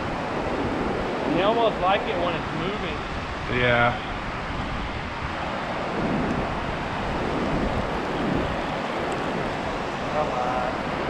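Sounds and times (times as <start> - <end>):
wind on microphone: 0.0 - 11.0
river water pouring over dam: 5.2 - 11.0.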